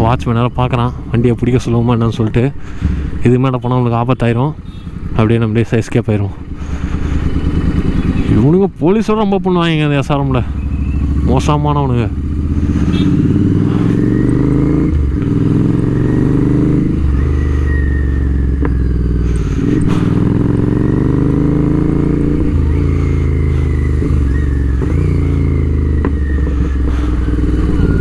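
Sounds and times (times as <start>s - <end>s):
motorcycle engine revving: 6.3s - 28.0s
exhaust pops: 18.6s - 20.5s, 24.0s - 28.0s.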